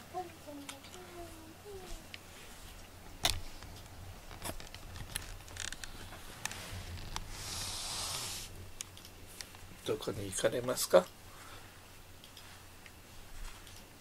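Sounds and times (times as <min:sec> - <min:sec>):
fur brushing over microphone: 0:06.6 - 0:08.5.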